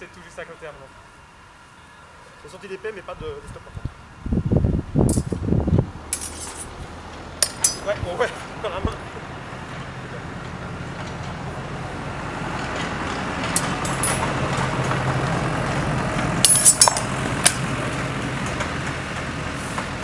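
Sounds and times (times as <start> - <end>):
tractor engine humming: 0.0 - 20.0
metal swords clashing: 6.1 - 6.7, 7.4 - 7.9, 16.4 - 17.6.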